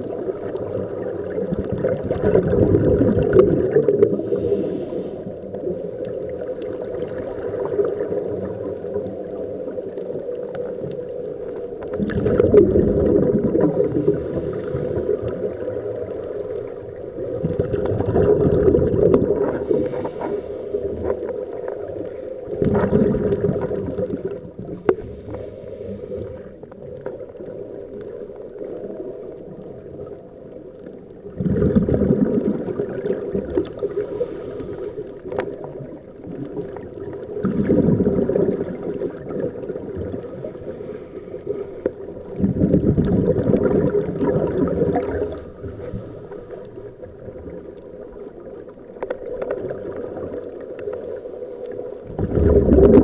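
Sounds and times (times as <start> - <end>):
dull underwater rumble: 0.0 - 53.0
underwater bubbles gurgling: 0.0 - 53.0.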